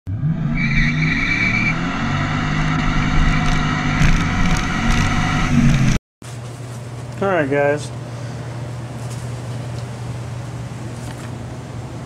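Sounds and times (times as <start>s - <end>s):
high whine: 0.1s - 6.0s
vehicle engine running: 1.3s - 6.0s.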